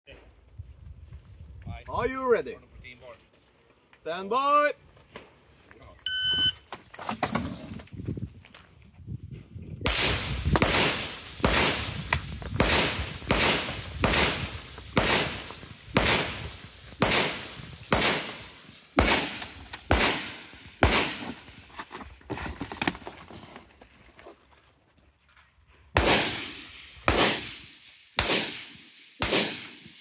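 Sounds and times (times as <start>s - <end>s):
rifle shots echoing: 9.9s - 21.4s, 26.0s - 30.0s.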